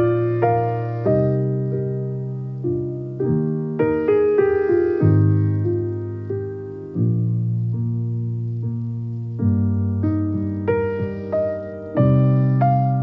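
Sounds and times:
slow piano melody: 0:00.0 - 0:13.0.

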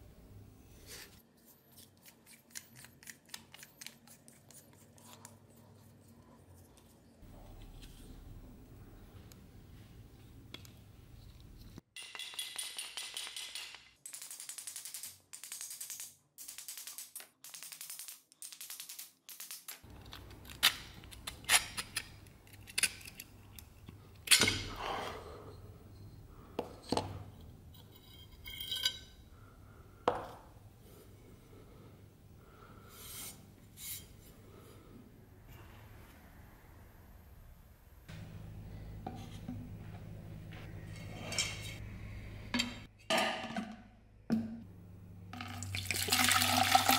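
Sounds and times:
metal parts clinking on workbench: 0:12.0 - 0:15.1, 0:27.8 - 0:29.2.

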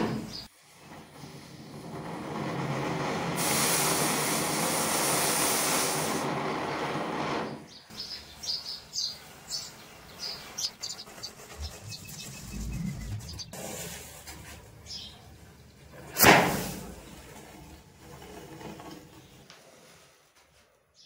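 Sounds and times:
firework fountain hissing: 0:00.6 - 0:07.5.

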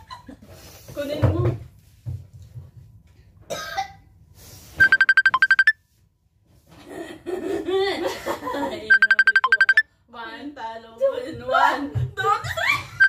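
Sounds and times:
sharp electronic beeps: 0:04.8 - 0:05.7, 0:08.9 - 0:09.8.

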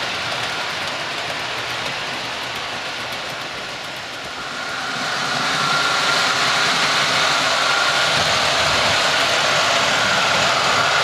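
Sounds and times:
model train motors whirring: 0:00.0 - 0:11.0
faint high whine: 0:04.1 - 0:11.0.

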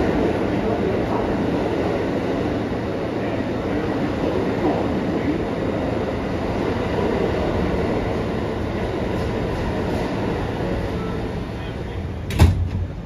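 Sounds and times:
subway car standing noise: 0:00.0 - 0:13.0.

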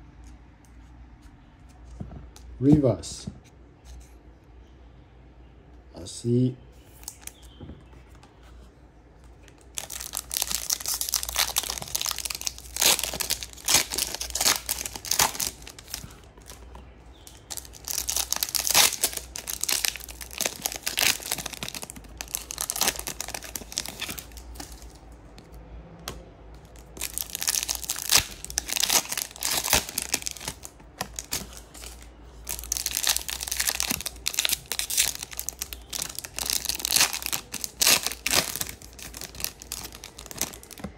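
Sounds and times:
foil wrappers crinkling and tearing: 0:09.5 - 0:25.0, 0:26.7 - 0:40.9.

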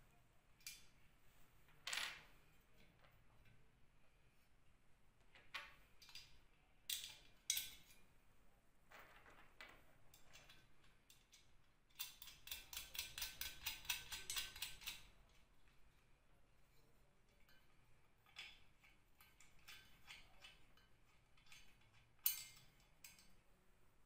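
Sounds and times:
metallic clicks and knocks: 0:09.3 - 0:15.4.

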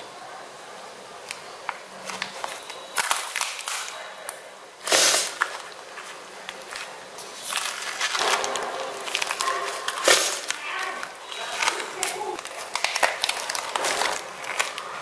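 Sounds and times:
slime squelch: 0:04.9 - 0:15.0.

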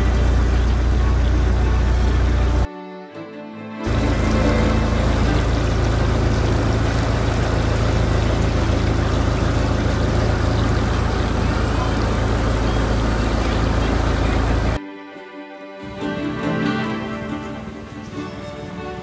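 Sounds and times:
motorboat engine running: 0:00.0 - 0:02.7, 0:03.8 - 0:14.8
water noise: 0:00.0 - 0:02.7, 0:03.8 - 0:14.8, 0:15.9 - 0:19.0.

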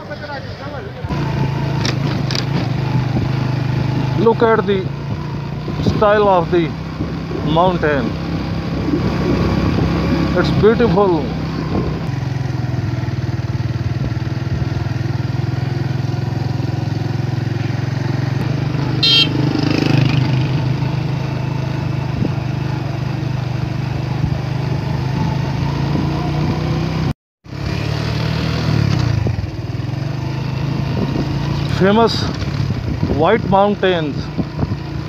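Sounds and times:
motorcycle engine running: 0:00.0 - 0:35.0
brief high-pitched tone: 0:19.0 - 0:19.4.

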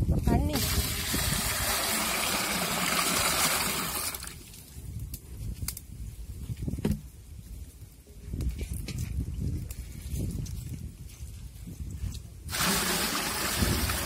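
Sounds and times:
water pouring into metal pot: 0:00.6 - 0:04.3, 0:12.5 - 0:14.0.

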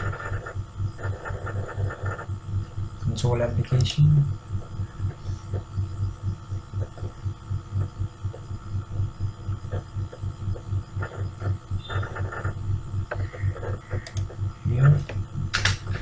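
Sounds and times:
low throbbing hum: 0:00.0 - 0:16.0
soft clicks: 0:13.7 - 0:14.4.

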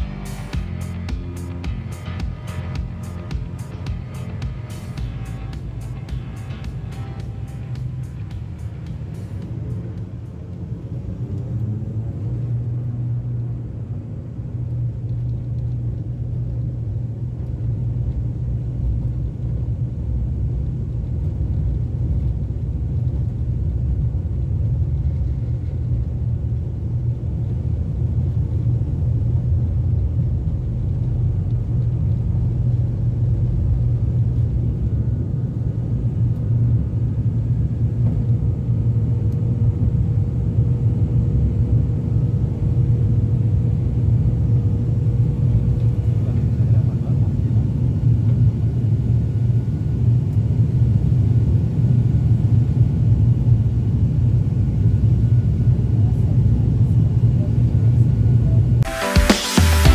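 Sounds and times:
propeller drone: 0:00.0 - 0:30.2.

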